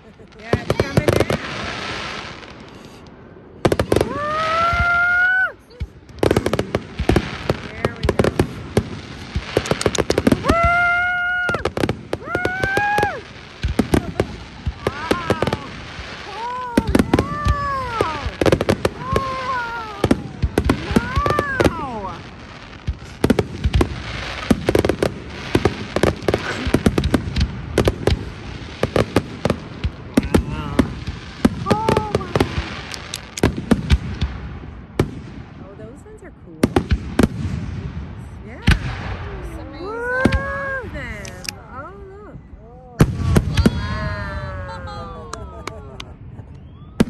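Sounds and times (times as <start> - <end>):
fireworks bangs and crackling: 0.0 - 47.0.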